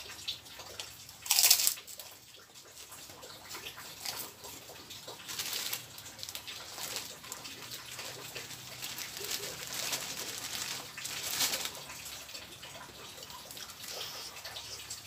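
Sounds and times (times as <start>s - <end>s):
plastic bag crinkling: 1.2s - 2.1s, 5.1s - 14.3s
steady rain hissing: 5.1s - 15.0s.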